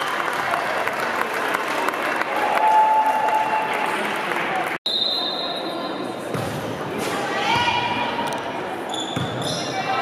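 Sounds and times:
crowd applauding: 0:00.0 - 0:04.8.

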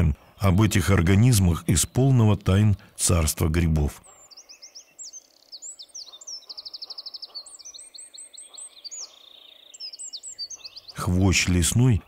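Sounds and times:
songbirds chirping: 0:00.0 - 0:12.0
bird trill: 0:03.9 - 0:12.0.

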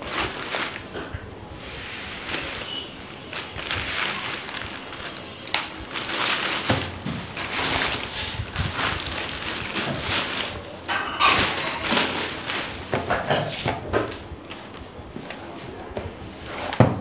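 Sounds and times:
plastic bag crinkling and tearing: 0:00.0 - 0:13.0.

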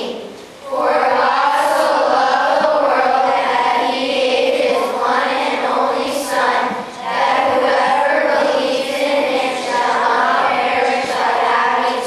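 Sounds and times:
children's choir singing: 0:00.0 - 0:12.0.

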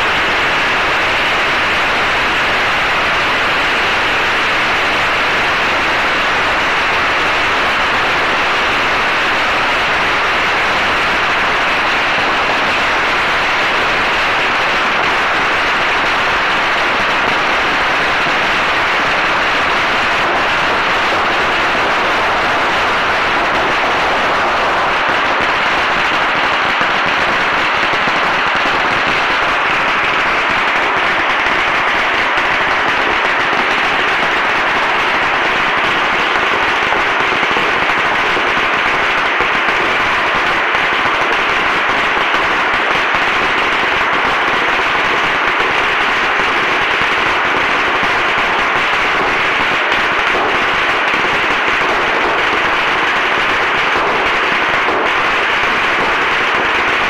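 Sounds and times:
firecrackers crackling: 0:00.0 - 0:57.0.

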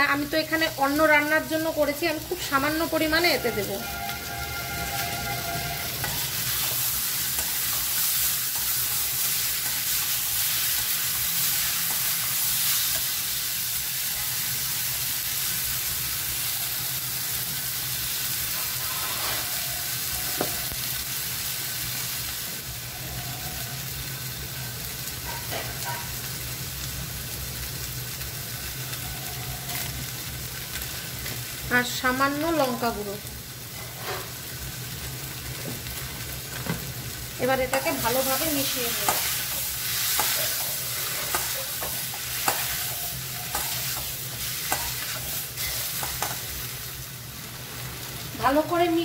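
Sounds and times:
vegetables sizzling in hot oil: 0:00.0 - 0:49.0
metal spatula scraping pan: 0:03.3 - 0:13.1, 0:18.5 - 0:19.6, 0:37.7 - 0:46.4.

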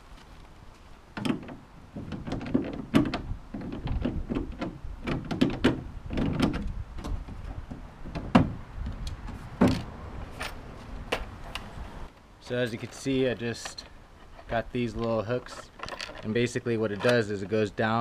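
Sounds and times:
bolts clicking: 0:08.1 - 0:18.0.

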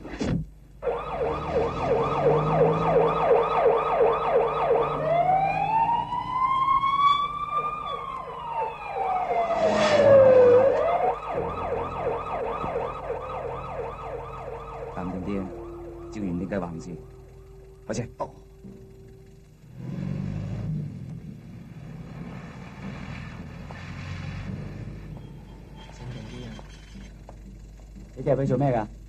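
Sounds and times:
police siren fast yelp: 0:00.8 - 0:17.6
siren slowly rising and falling: 0:00.8 - 0:27.0
loud rush of noise: 0:09.0 - 0:12.4.

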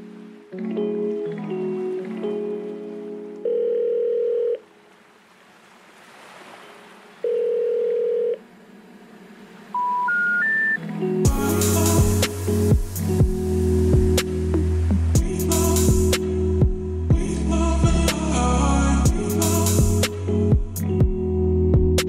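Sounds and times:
background music: 0:00.0 - 0:04.7, 0:09.8 - 0:22.0
telephone ringback tone: 0:03.4 - 0:04.6, 0:07.2 - 0:08.4, 0:09.8 - 0:10.8
music with a beat: 0:11.2 - 0:18.4, 0:19.0 - 0:22.0.

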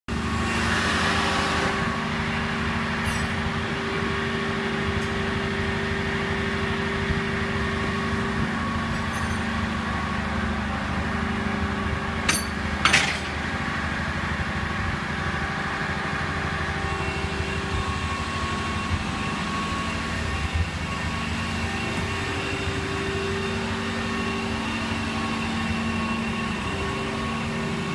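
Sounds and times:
truck engine running: 0:00.1 - 0:27.9.

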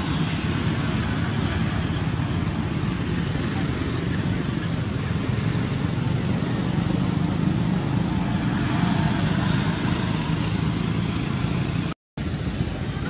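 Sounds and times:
vehicle passing: 0:00.0 - 0:12.0
road traffic noise: 0:00.0 - 0:13.0.

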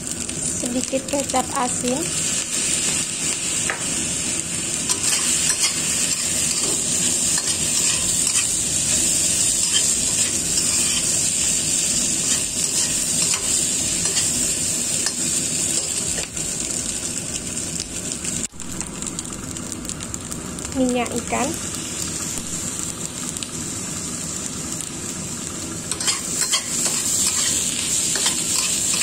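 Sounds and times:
fried rice sizzling in a wok: 0:00.0 - 0:29.0
metal spatula scraping a wok: 0:04.9 - 0:11.4, 0:25.9 - 0:29.0.

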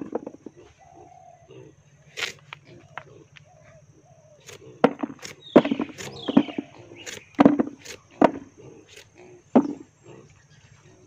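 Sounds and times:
knife peeling fruit skin: 0:02.1 - 0:02.6, 0:04.4 - 0:06.2, 0:07.0 - 0:08.0.

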